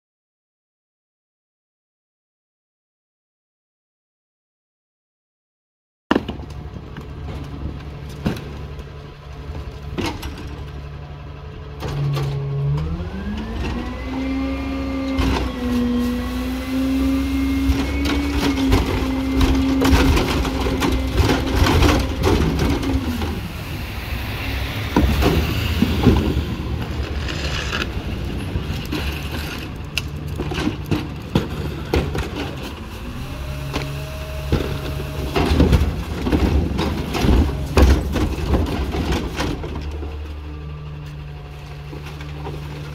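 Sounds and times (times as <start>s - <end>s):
diesel engine idling and revving: 6.6s - 42.9s
plastic carts clanking: 17.7s - 23.4s, 26.0s - 32.9s, 34.5s - 40.2s.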